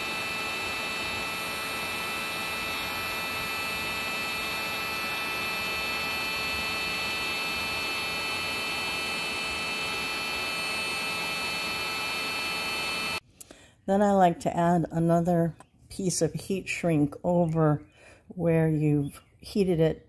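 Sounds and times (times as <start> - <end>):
heat gun fan whine: 0.0 - 13.2.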